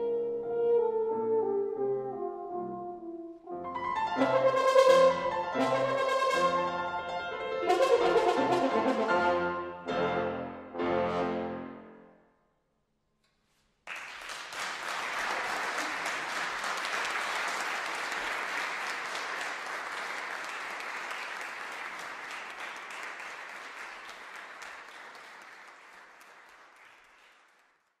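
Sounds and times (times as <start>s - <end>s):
audience applauding: 13.8s - 28.0s.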